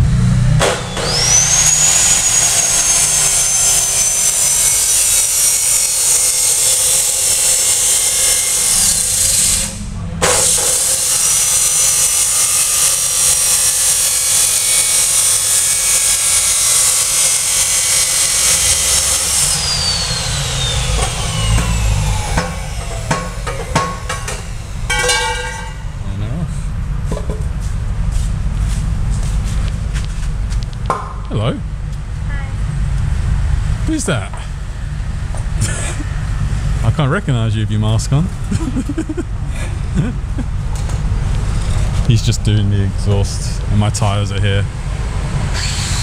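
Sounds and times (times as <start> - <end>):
angle grinder cutting metal: 0.5 - 26.0, 45.5 - 46.0.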